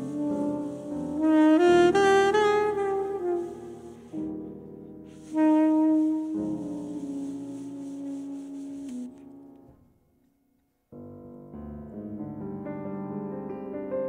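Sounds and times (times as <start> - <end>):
soprano saxophone playing jazz: 0.0 - 9.8
grand piano: 0.0 - 10.0, 10.9 - 14.0.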